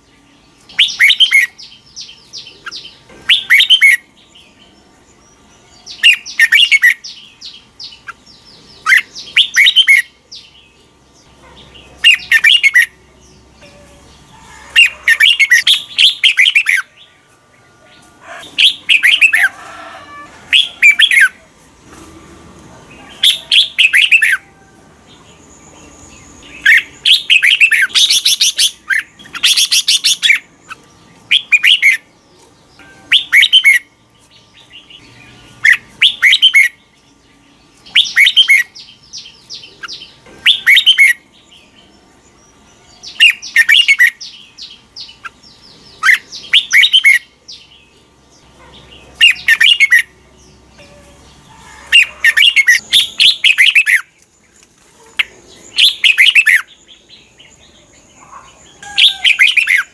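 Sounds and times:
bird singing whistled phrases: 0:52.0 - 0:54.1.

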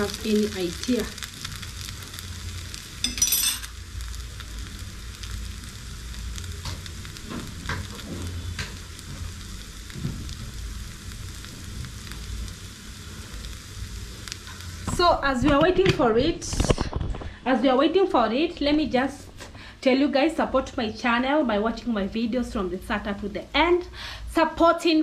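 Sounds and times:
fritter sizzling in frying pan: 0:00.0 - 0:17.3.

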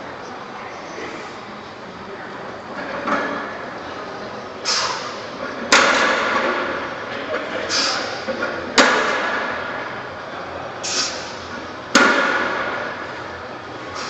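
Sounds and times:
short hiss: 0:04.6 - 0:05.2, 0:07.7 - 0:08.1, 0:10.8 - 0:11.3.

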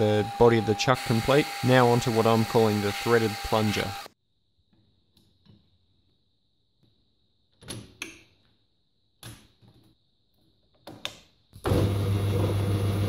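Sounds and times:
lathe motor humming: 0:00.0 - 0:04.1.

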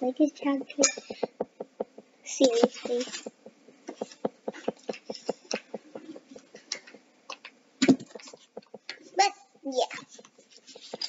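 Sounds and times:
plastic tubes and caps clicking: 0:00.8 - 0:09.1.

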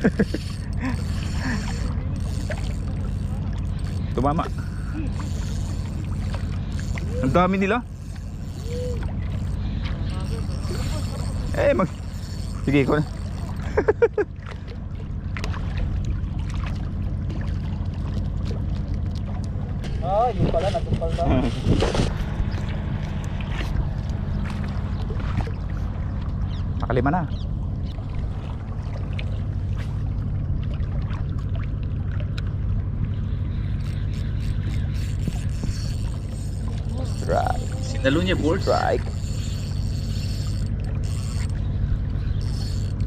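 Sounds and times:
wind rumble on microphone: 0:14.8 - 0:39.1
wind buffeting microphone: 0:19.8 - 0:25.7.

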